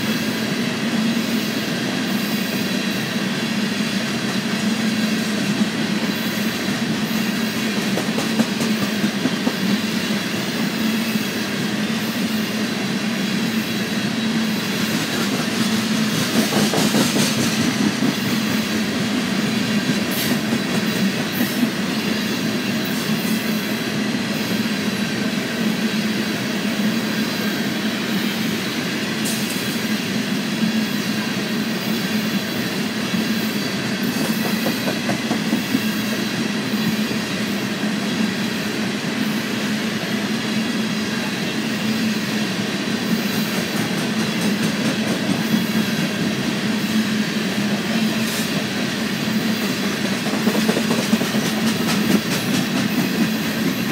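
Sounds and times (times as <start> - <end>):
train wheels rumbling on rails: 0.0 - 53.9.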